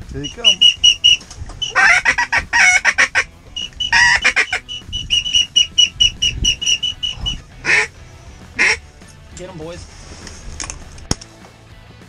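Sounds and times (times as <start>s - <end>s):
duck whistle peeps: 0.1s - 7.9s
raspy duck call quacking: 0.2s - 7.9s, 8.6s - 8.8s.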